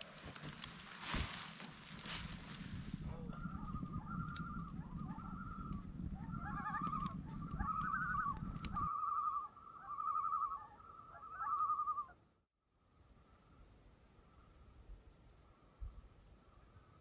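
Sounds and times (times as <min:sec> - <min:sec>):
campfire crackling: 0:00.0 - 0:09.1
loons tremolo calling: 0:02.3 - 0:12.2.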